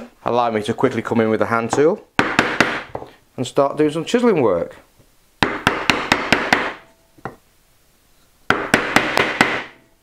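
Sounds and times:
chisel knocking into wood: 1.7s - 3.1s, 5.4s - 7.4s, 8.5s - 9.8s.

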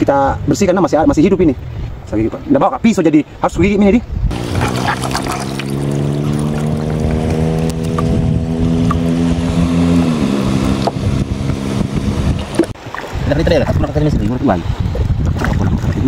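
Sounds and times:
engine running steadily: 4.3s - 12.8s.

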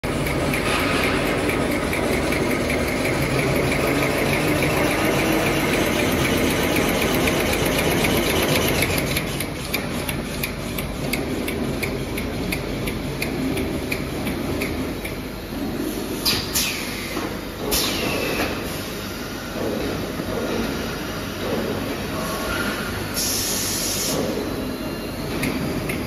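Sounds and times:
machine hum with fast ticking: 0.0s - 16.7s.

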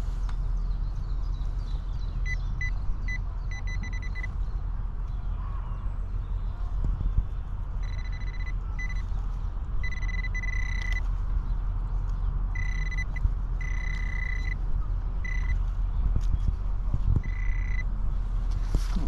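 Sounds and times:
steady low rumble: 0.0s - 19.0s
metal detector beeps: 2.2s - 4.3s, 7.8s - 9.1s, 9.8s - 11.1s, 12.5s - 14.6s, 15.2s - 15.6s, 17.2s - 17.9s.

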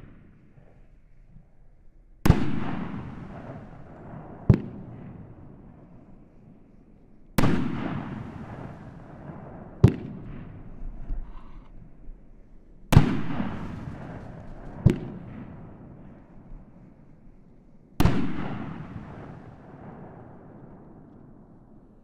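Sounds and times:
firework aerial booms: 2.3s - 5.6s, 7.4s - 11.6s, 12.9s - 16.3s.

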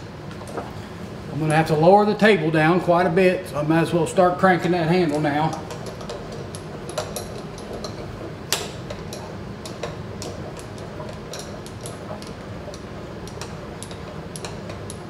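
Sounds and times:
steady low hum: 0.0s - 15.0s
crank clicking and ticking: 5.0s - 15.0s.

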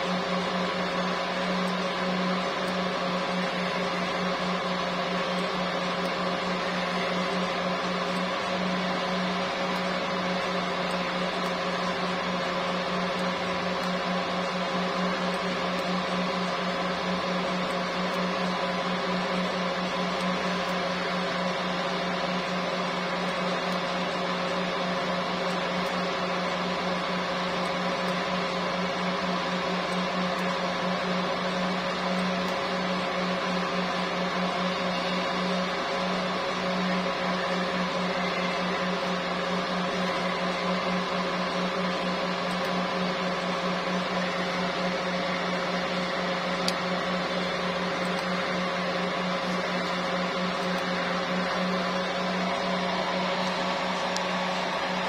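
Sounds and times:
machine hum: 0.0s - 55.0s.

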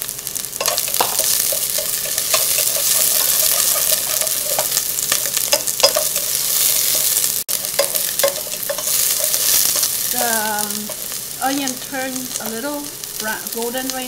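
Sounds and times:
shallots sizzling in oil: 0.0s - 14.0s
chopsticks clicking against pot: 0.6s - 9.9s.

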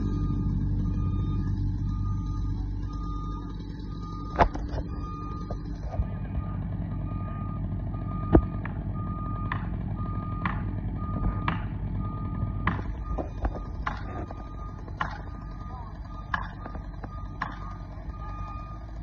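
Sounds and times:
low engine rumble: 0.0s - 19.0s
reversing alarm beeping: 0.0s - 19.0s.

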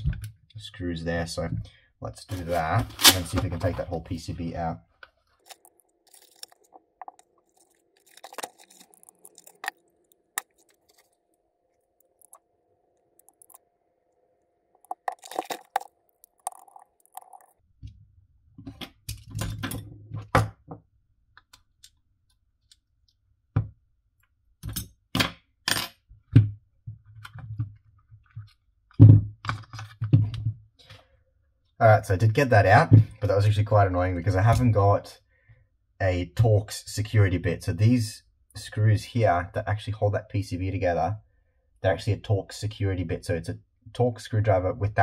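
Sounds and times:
small screwdrivers clicking and clinking: 5.4s - 11.1s, 12.0s - 12.4s, 13.2s - 13.6s, 14.8s - 17.6s.

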